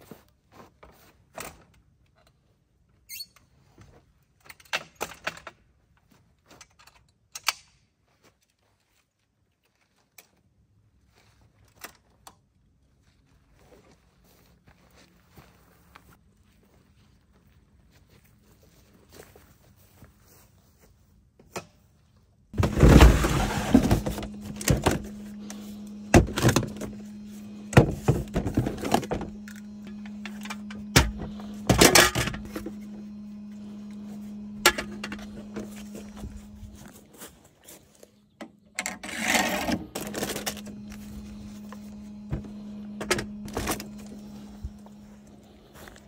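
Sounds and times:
objects thunking and knocking: 0:22.6 - 0:27.0, 0:27.6 - 0:32.8
steady low hum: 0:22.6 - 0:46.0.

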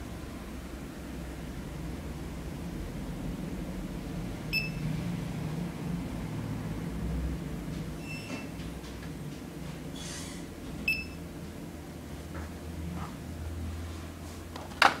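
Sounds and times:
steady low hum: 0:00.0 - 0:14.8
barcode scanner beeps: 0:10.9 - 0:11.2.

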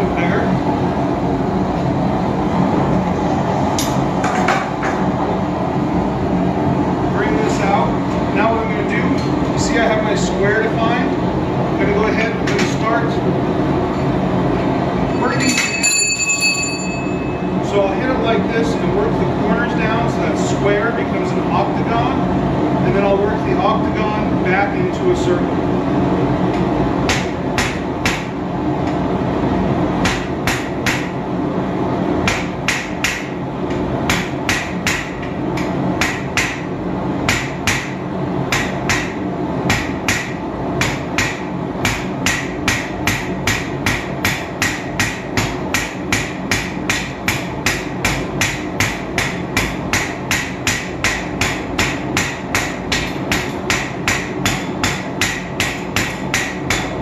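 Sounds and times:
hammer striking steel on anvil: 0:15.2 - 0:17.4, 0:37.3 - 0:57.0.

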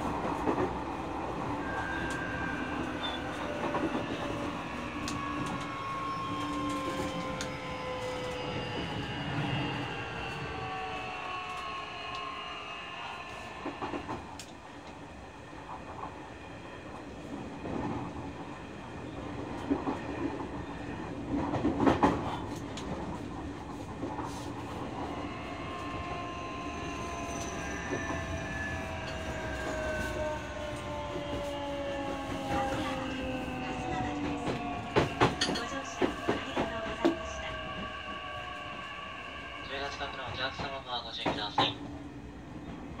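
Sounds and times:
electric train motors whining: 0:00.5 - 0:15.9, 0:24.5 - 0:40.1
train running rumble: 0:16.9 - 0:43.0.

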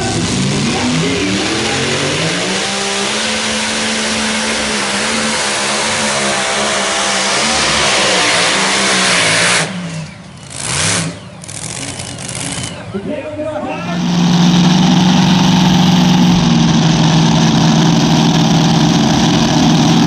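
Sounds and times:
tractor engines at full throttle: 0:00.0 - 0:20.0.

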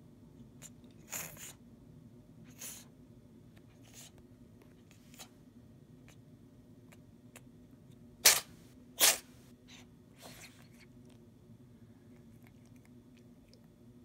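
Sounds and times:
cat sneezing: 0:00.6 - 0:01.6, 0:02.5 - 0:02.9, 0:08.2 - 0:10.8
cat sniffing: 0:00.6 - 0:01.6, 0:02.5 - 0:02.9, 0:03.7 - 0:04.2, 0:08.2 - 0:11.2.

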